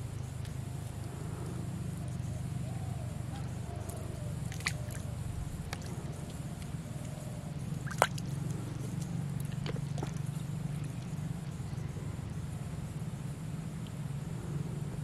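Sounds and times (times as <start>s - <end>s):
steady low hum: 0.0s - 15.0s
float plopping into water: 4.5s - 5.0s, 7.8s - 8.2s.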